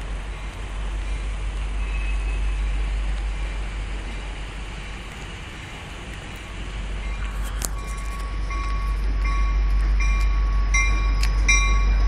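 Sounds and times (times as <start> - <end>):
freight train rumbling: 0.0 - 12.0
wheel and road noise: 0.0 - 12.0.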